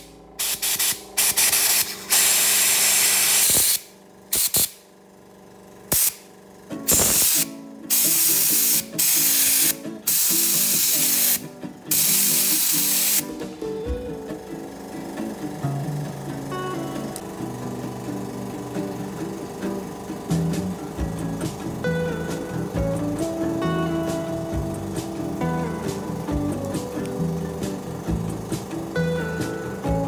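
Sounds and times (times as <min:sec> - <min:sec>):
compressed air blow gun hissing: 0:00.4 - 0:04.8, 0:05.9 - 0:13.4.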